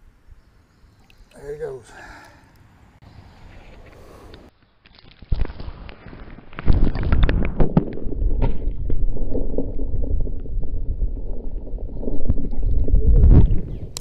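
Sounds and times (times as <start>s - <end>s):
muffled underwater churning: 8.0s - 13.8s.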